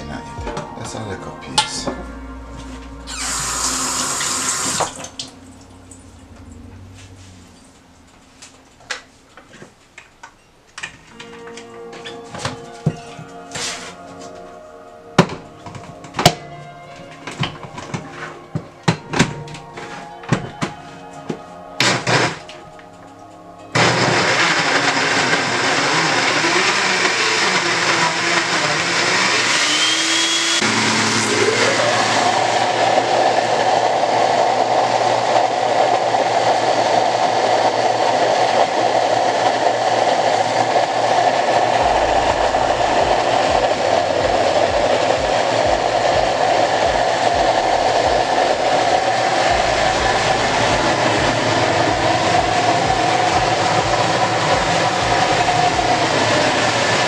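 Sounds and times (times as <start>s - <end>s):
blender running: 3.1s - 5.0s, 23.8s - 57.0s.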